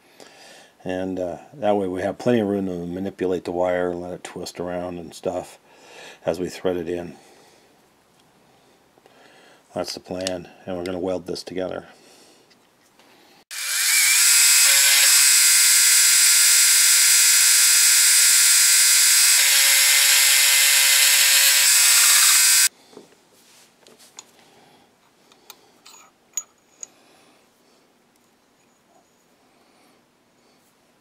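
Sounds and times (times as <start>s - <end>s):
milling machine cutting whine: 13.5s - 22.7s.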